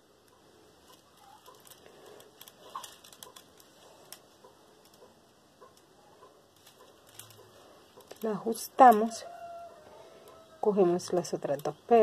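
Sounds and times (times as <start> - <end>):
beads clicking together: 0.8 - 5.1.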